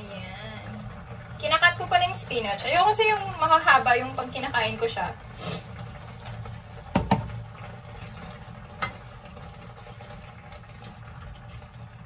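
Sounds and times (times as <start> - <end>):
sauce bubbling in pan: 0.0 - 12.0
spatula knocking against pan: 6.9 - 7.3.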